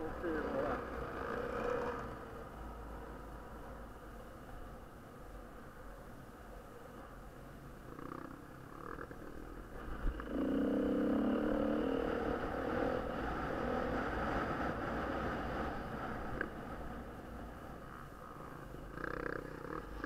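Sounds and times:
off-road motorcycle engine revving: 0.0s - 2.3s, 8.0s - 16.6s, 17.8s - 20.0s.

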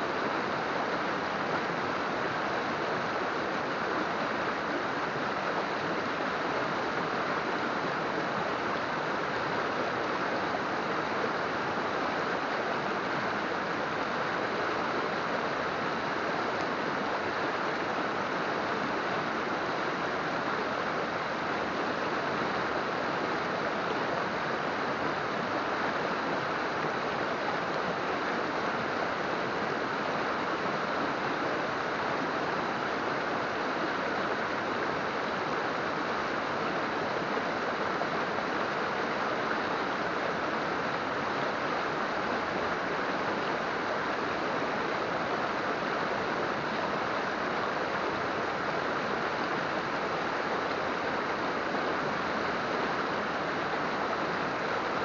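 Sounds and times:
river water rushing: 0.0s - 55.0s.

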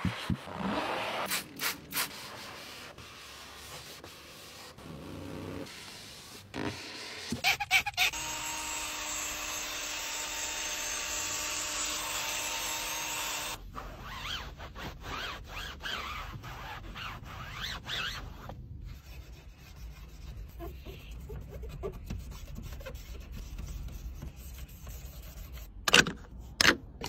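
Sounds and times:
towel rubbing on plastic: 13.7s - 25.7s.

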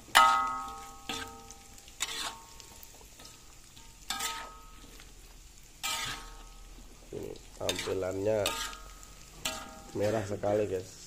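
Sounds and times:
metal spoon striking a wok: 0.0s - 2.4s, 7.8s - 10.0s
faint sizzling of frying food: 0.0s - 11.0s.

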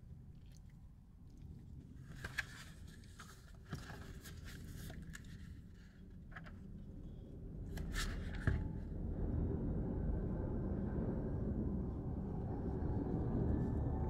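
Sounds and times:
book pages rustling: 2.0s - 6.8s, 7.7s - 8.8s
low rumble: 6.5s - 14.0s.

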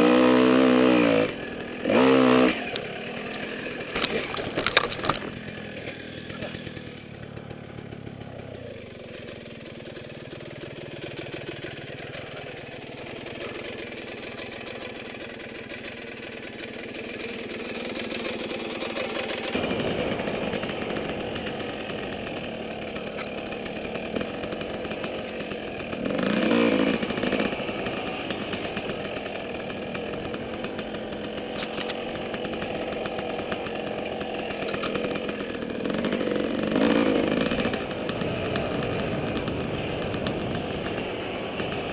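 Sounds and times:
engine revving: 0.0s - 7.1s, 17.6s - 41.9s
dirt bike engine: 0.0s - 41.9s.

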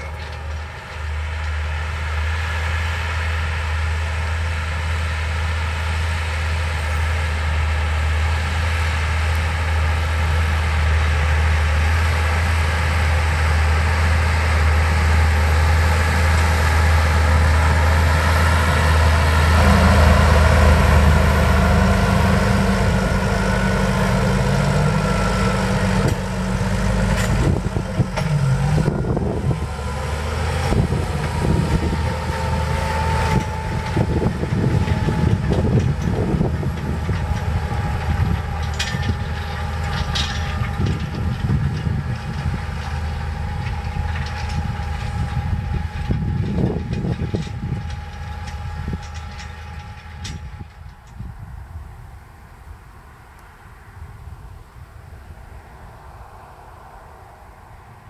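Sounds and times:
tractor diesel engine under load: 0.0s - 58.0s
wind buffeting microphone: 17.2s - 53.1s.

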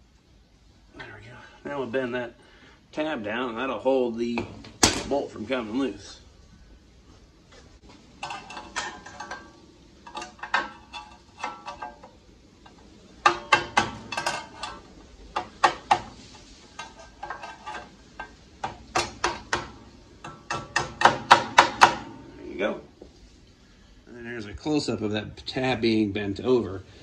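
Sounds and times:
hammer tapping metal: 8.2s - 22.3s.

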